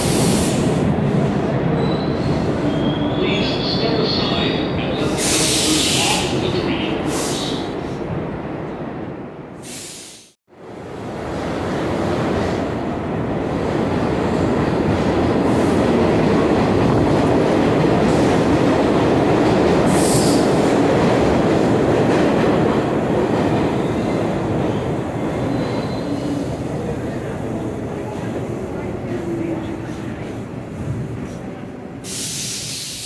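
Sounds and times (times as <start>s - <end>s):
train wheels rumbling on rails: 10.9s - 33.0s
high-pitched hiss or squeal: 32.0s - 33.0s.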